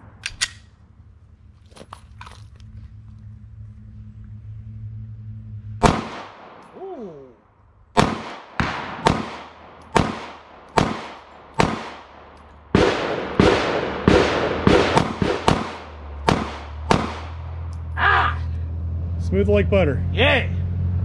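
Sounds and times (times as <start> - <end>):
pistol shots echoing: 5.8 - 6.8, 8.0 - 17.7.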